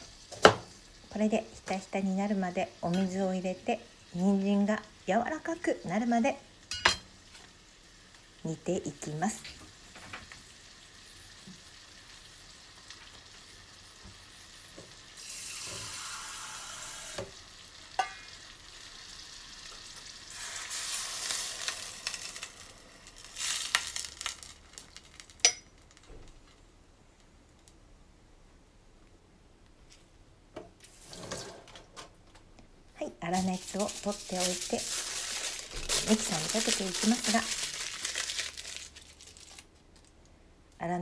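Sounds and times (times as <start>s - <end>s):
water hissing into a saucepan: 9.9s - 24.2s
aluminium foil crinkling: 20.4s - 26.6s, 33.3s - 40.3s.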